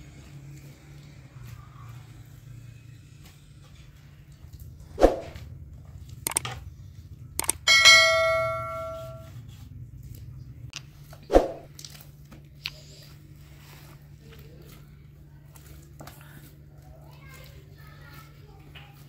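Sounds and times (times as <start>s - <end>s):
metal vessel struck ringing: 7.6s - 9.3s.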